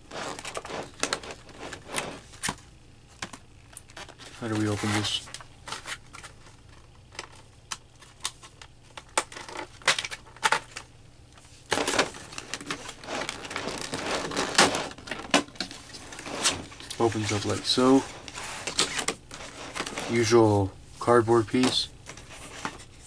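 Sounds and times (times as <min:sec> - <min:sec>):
plastic packaging clicking and crackling: 0:03.2 - 0:10.9.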